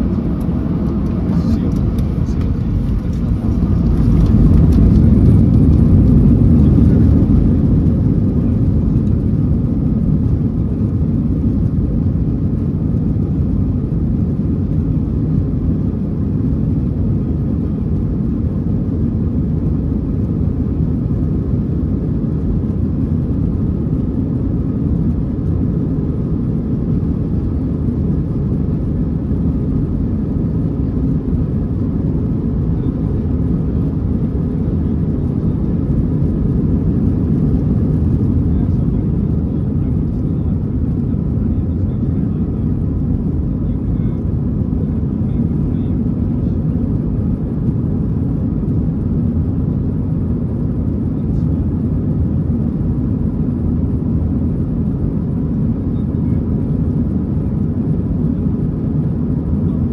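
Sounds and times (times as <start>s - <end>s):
faint steady whine: 0.0s - 59.9s
jet engines rumbling in cabin: 0.0s - 59.9s.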